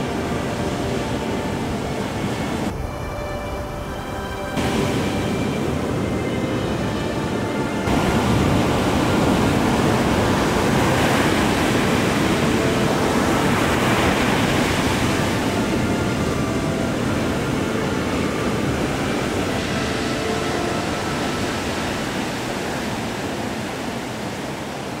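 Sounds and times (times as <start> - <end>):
waves breaking: 0.0 - 25.0.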